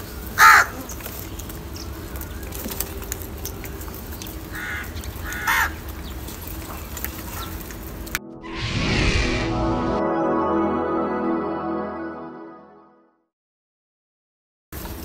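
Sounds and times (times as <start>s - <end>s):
crows cawing: 0.4s - 0.8s, 4.5s - 5.9s.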